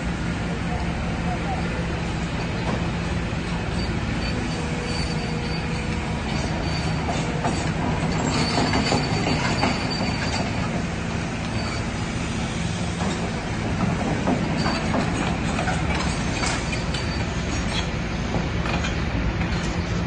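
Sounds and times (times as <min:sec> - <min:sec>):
excavator diesel engine running: 0:00.0 - 0:20.0
faint metallic squeal: 0:03.8 - 0:10.6, 0:11.6 - 0:11.9.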